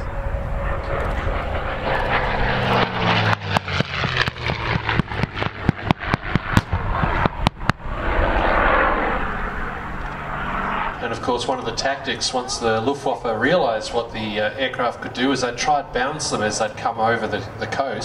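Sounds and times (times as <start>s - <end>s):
propeller plane engine passing low: 0.0s - 18.0s
fireball rushing blast: 0.6s - 11.5s.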